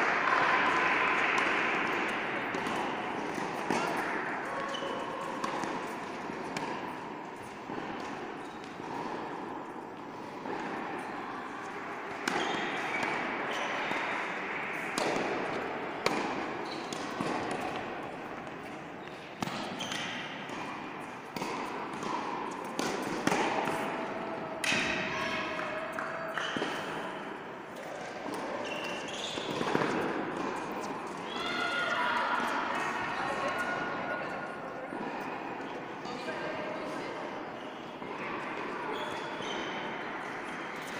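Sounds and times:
tennis ball struck and bouncing: 0:00.2 - 0:09.4, 0:14.8 - 0:18.1, 0:21.3 - 0:23.9.

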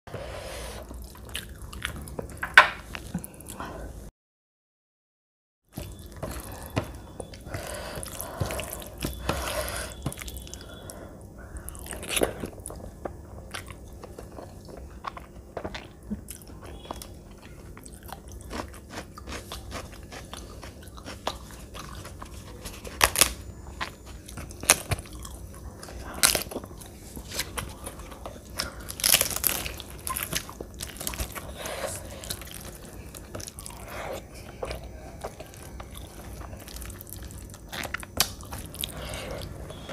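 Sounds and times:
chewing and mouth noises: 0:00.8 - 0:03.6, 0:09.9 - 0:39.9
crunchy snaps: 0:22.8 - 0:33.8, 0:34.6 - 0:39.9.

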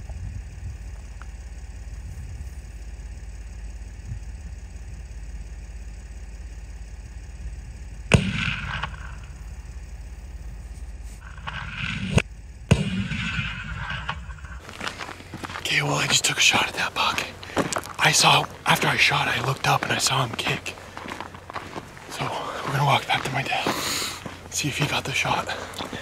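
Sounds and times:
steady low rumble: 0:00.0 - 0:26.0
rifle shot: 0:08.1 - 0:09.4, 0:11.3 - 0:14.6.

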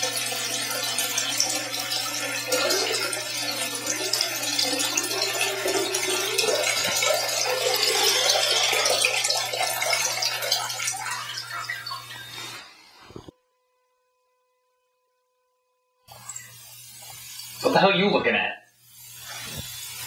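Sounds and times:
running water pouring: 0:00.0 - 0:12.7.

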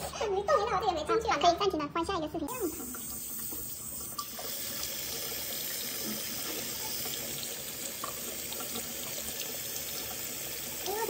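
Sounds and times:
faucet water splashing into sink: 0:02.5 - 0:11.0.

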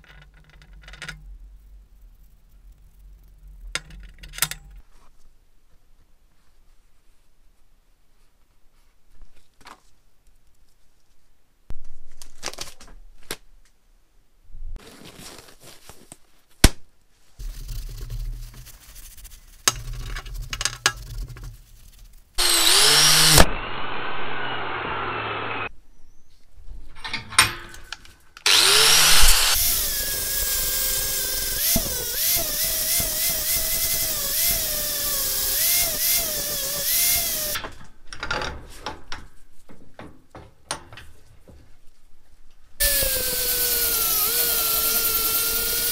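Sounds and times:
angle grinder grinding steel: 0:22.4 - 0:25.7, 0:28.4 - 0:37.6, 0:42.8 - 0:45.9.

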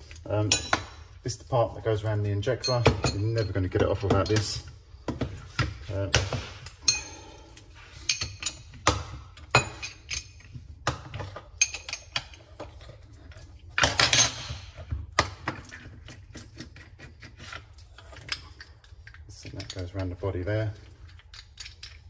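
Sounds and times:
metal tools clinking on workbench: 0:00.4 - 0:01.0, 0:02.4 - 0:04.6, 0:13.8 - 0:14.6.

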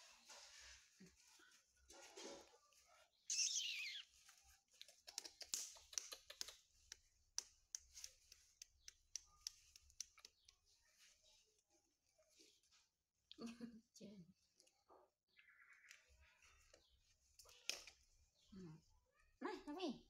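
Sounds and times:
baby monkey squealing: 0:03.3 - 0:04.1.

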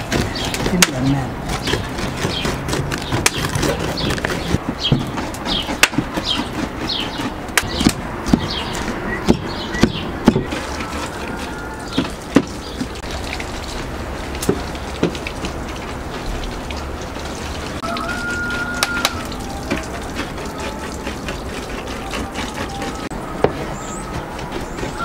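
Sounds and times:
knives chopping on wooden board: 0:00.0 - 0:11.1, 0:12.0 - 0:12.6.

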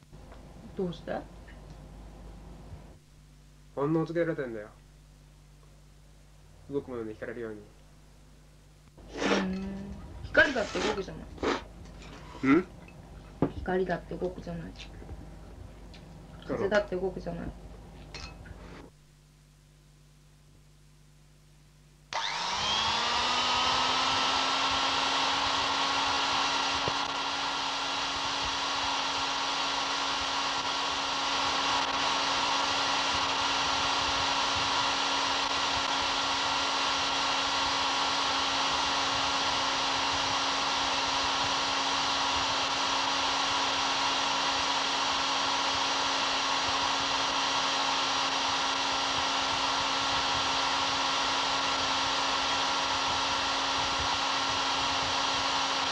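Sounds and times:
electric drill running: 0:22.1 - 0:55.9.

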